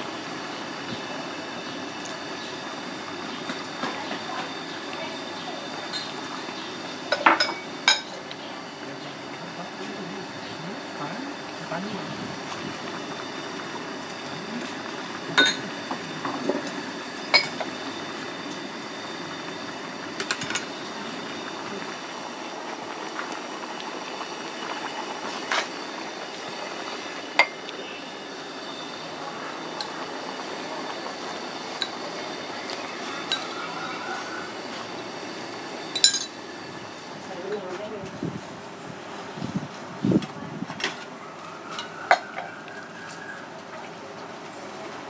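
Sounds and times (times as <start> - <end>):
soup bubbling at a boil: 0.0 - 37.4
spoons clinking on bowls: 15.4 - 15.6, 36.0 - 36.4.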